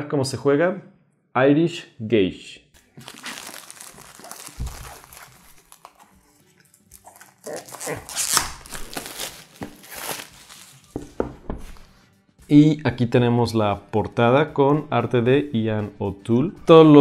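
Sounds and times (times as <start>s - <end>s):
plastic wrap crinkling and tearing: 2.8s - 11.0s
box thumping on wooden table: 11.0s - 11.8s.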